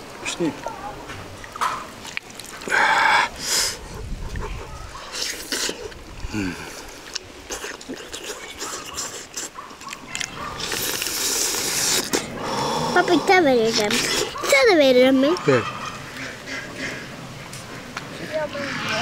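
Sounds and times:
chewing and crunching: 4.3 - 12.4, 13.7 - 14.7.

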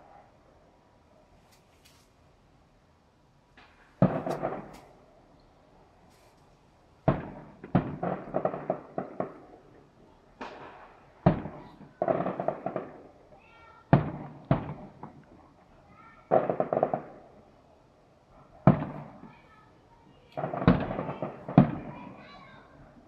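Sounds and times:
fireworks crackling pops: 1.4 - 2.2, 3.5 - 5.0, 6.1 - 9.6, 10.3 - 17.2, 18.6 - 22.6
fireworks bangs: 3.6 - 5.1, 7.0 - 15.4, 16.2 - 17.4, 18.6 - 23.0.

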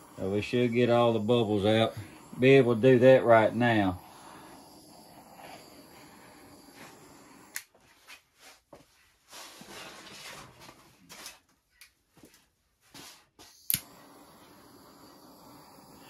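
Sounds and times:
butane torch hissing: 0.0 - 7.8, 13.0 - 16.0
soft knocks and shuffling: 7.7 - 13.5
torch switch click: 13.6 - 14.3.

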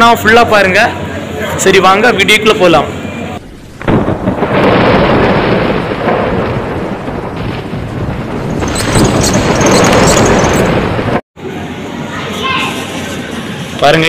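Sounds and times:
crackling: 3.4 - 11.2
thunder rumbling: 3.4 - 11.2.

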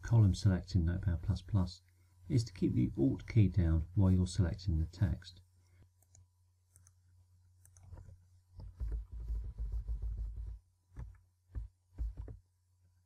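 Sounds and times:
faint steady hum: 0.0 - 13.0
keyboard keys thumping: 7.8 - 12.4.

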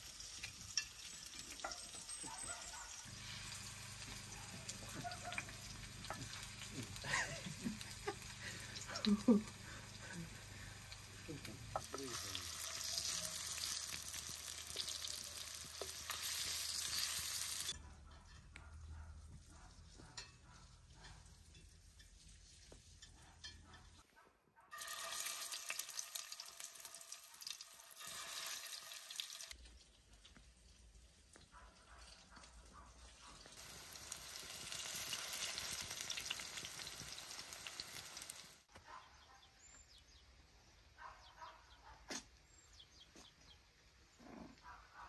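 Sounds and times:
patties sizzling in hot oil: 0.0 - 17.8, 24.7 - 31.4, 33.0 - 38.7.

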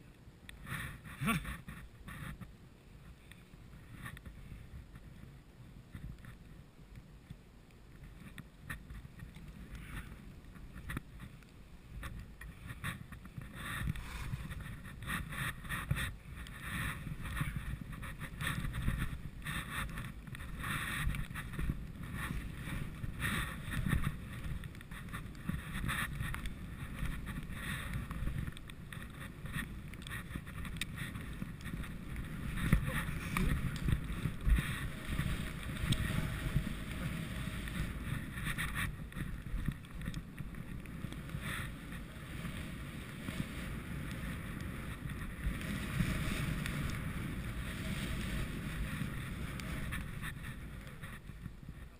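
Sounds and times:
skis scraping through snow: 0.6 - 6.6, 7.9 - 51.9
wind buffeting microphone: 12.0 - 51.9.

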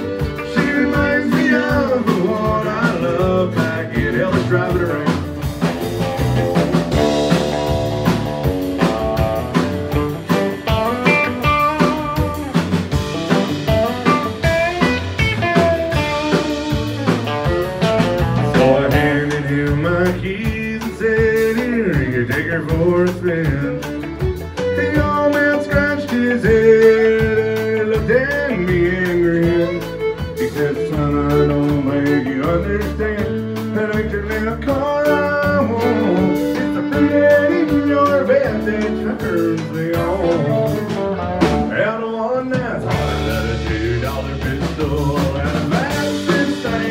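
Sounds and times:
man singing: 0.0 - 5.6, 18.2 - 46.9
live country band playing: 0.0 - 46.9.

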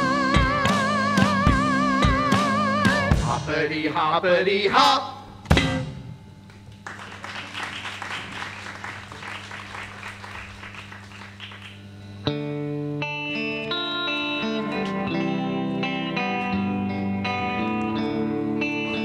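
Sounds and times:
person singing: 0.0 - 3.9
guitar chords: 0.0 - 4.2, 4.8 - 6.9, 11.4 - 19.0.

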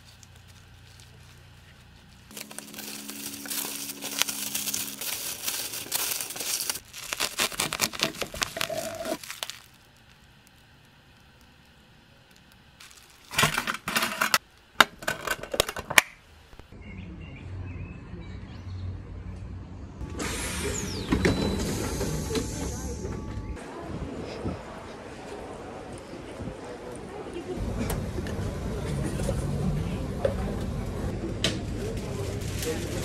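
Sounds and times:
sandwich wrap crinkling: 0.0 - 14.7.

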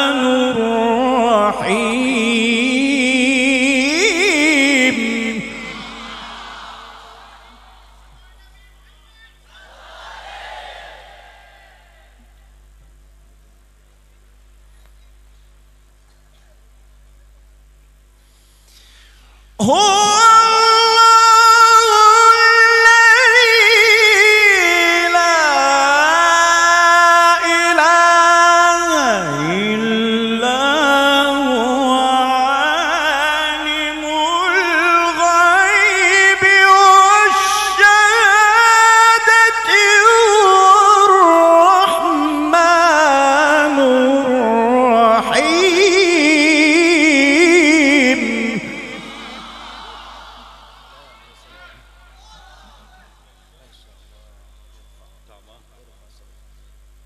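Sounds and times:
man chanting recitation: 0.0 - 7.2, 19.6 - 49.8.

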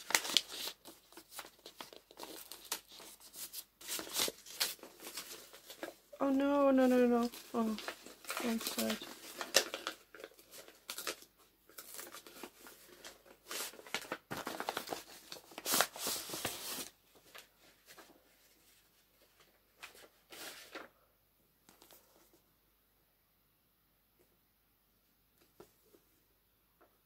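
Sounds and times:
paper wrapping rustling: 0.0 - 21.0.

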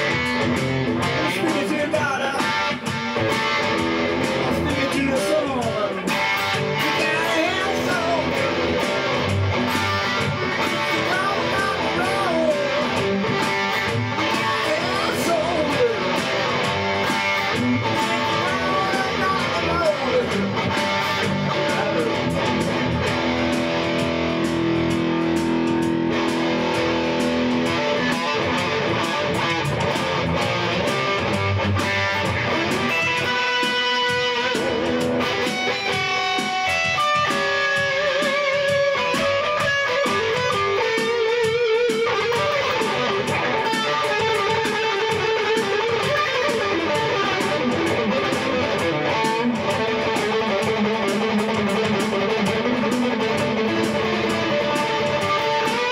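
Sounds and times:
electric guitar rock playing: 0.0 - 55.9.

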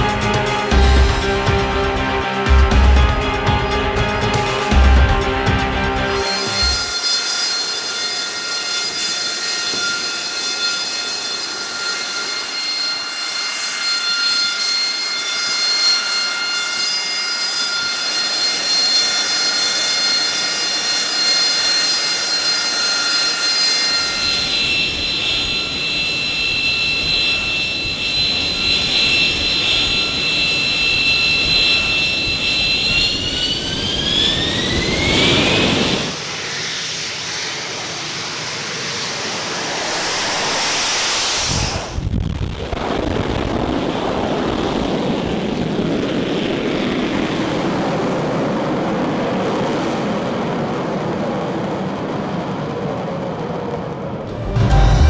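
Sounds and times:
jet engine whine: 0.0 - 55.0
distant jet rushing: 22.3 - 43.1.

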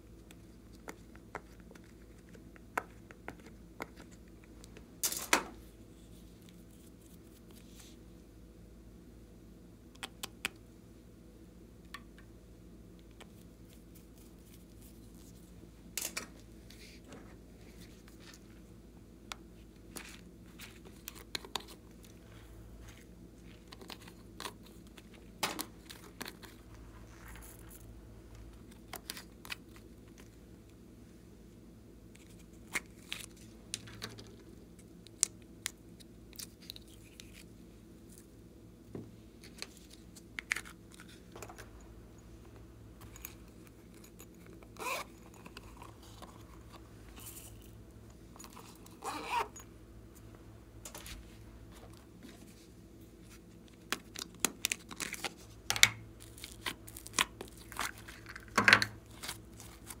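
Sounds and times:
faint steady hum: 0.0 - 60.0
plastic pouch crinkling: 56.2 - 60.0.

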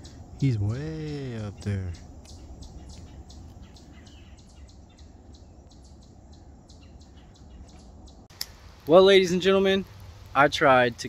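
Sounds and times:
faint bird chirps: 0.0 - 8.3
low steady rumble: 0.0 - 11.0.

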